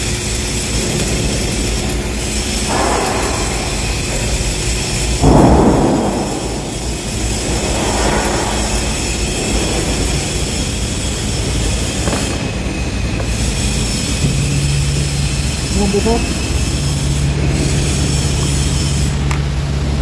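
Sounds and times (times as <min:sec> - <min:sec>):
welding arc crackling and sizzling: 0:00.0 - 0:20.0.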